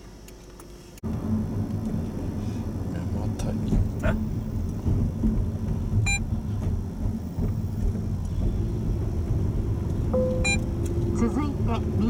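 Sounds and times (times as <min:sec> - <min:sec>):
car road and engine rumble: 0:00.0 - 0:12.0
short electronic beep: 0:10.2 - 0:10.7.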